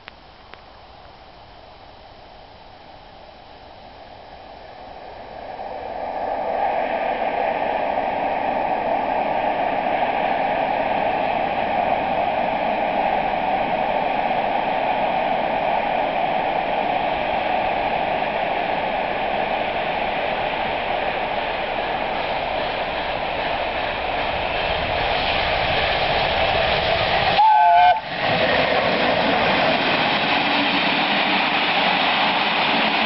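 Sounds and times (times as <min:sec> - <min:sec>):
steam locomotive exhaust roar: 0:00.8 - 0:33.0.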